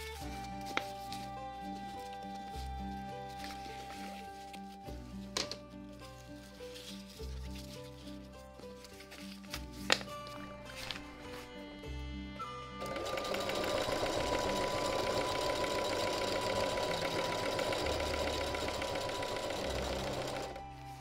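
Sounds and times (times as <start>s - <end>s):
background music: 0.0s - 21.0s
sewing machine stitching: 12.8s - 20.6s.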